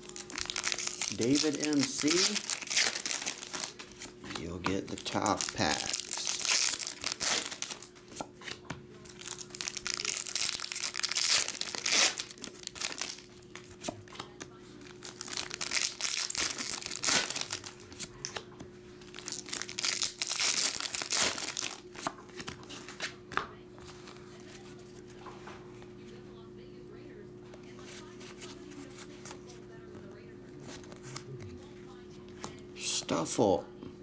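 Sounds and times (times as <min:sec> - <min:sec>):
foil wrappers tearing and crinkling: 0:00.0 - 0:08.0, 0:09.0 - 0:13.6, 0:14.9 - 0:18.1, 0:19.1 - 0:23.0.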